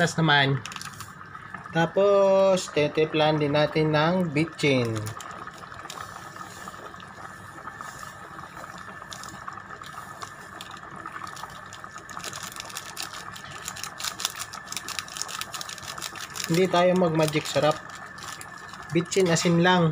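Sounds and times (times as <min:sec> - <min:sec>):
soup boiling and bubbling: 0:00.0 - 0:19.9.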